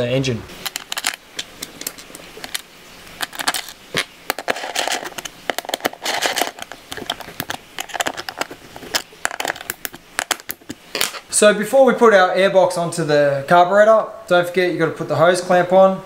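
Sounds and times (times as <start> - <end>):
tool scraping against plastic: 0.6 - 11.3.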